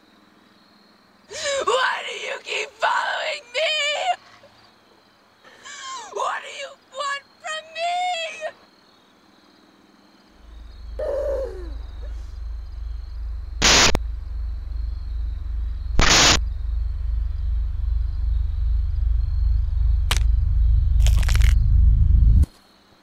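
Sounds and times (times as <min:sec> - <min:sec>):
low pulsing rumble: 0:10.4 - 0:22.5
crackling burst: 0:11.8 - 0:22.5
loud short noise hits: 0:13.6 - 0:14.4, 0:16.0 - 0:16.6.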